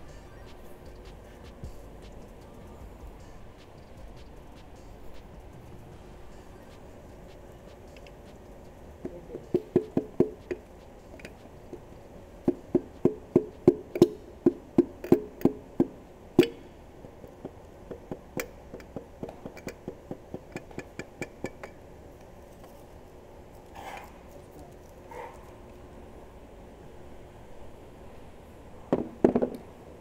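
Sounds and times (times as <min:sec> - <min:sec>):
hammer tapping on metal: 0:06.7 - 0:21.8.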